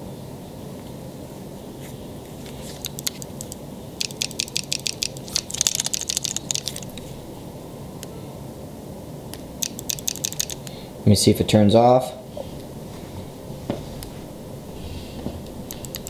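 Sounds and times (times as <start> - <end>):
sharp plastic clicks: 2.8 - 7.0, 9.3 - 10.8, 15.7 - 16.0.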